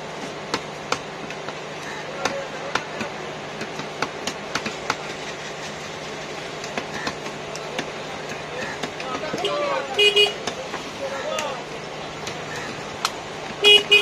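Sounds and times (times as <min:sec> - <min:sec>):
cleaver chopping on wooden block: 0:00.5 - 0:05.1, 0:06.6 - 0:09.5.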